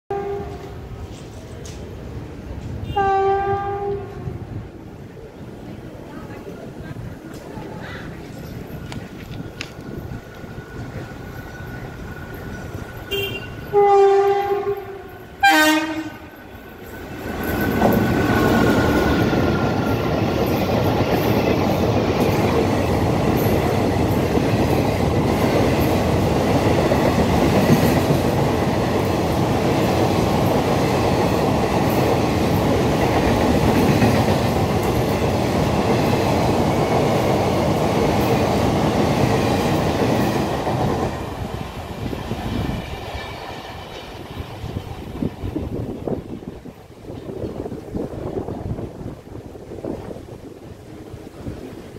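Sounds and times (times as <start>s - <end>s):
train horn: 0.1s - 0.9s, 2.8s - 4.4s, 13.0s - 16.4s
train wheels rumbling on rails: 0.1s - 51.9s.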